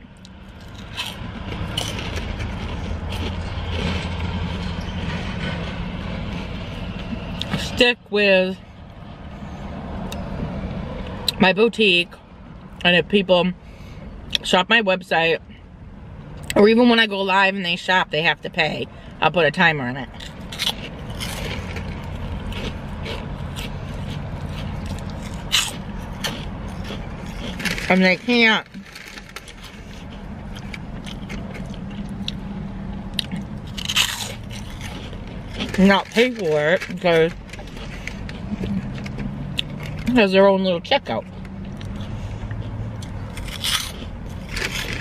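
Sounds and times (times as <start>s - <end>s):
vehicle engine rumbling: 0.0s - 45.0s
person chewing crunchy snack: 0.1s - 7.7s, 20.1s - 32.4s, 33.1s - 40.1s, 41.2s - 45.0s.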